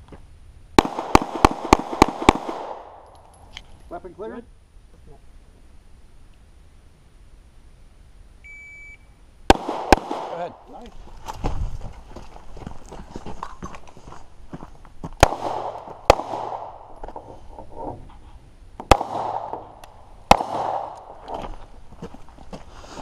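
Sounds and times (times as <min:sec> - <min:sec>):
handgun shots: 0:09.5 - 0:10.4, 0:20.3 - 0:21.1
footsteps on dirt and gravel: 0:10.8 - 0:17.5, 0:21.0 - 0:23.0.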